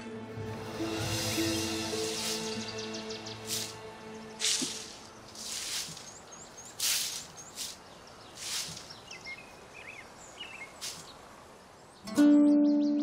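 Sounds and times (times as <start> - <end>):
plucked-string music chord: 0.0 - 5.3, 12.1 - 13.0
broom sweeping dry earth: 0.5 - 9.4, 10.6 - 11.2
small birds chirping: 0.9 - 13.0.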